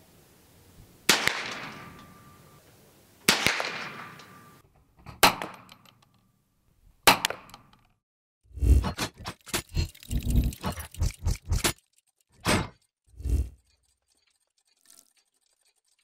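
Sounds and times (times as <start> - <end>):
rifle shots cracking: 1.1 - 2.0, 3.3 - 4.4
gunshot echo: 1.1 - 2.3, 3.3 - 4.6.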